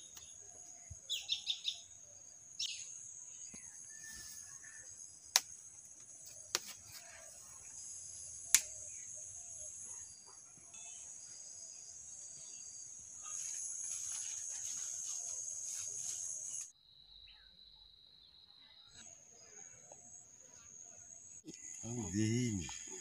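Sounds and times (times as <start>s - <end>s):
bird chirps: 0.0s - 5.3s.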